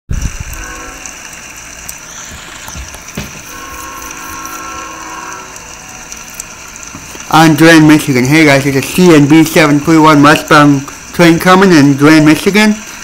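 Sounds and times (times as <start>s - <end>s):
steady hiss: 0.1s - 13.0s
distant locomotive horn: 0.2s - 1.6s, 3.4s - 6.9s.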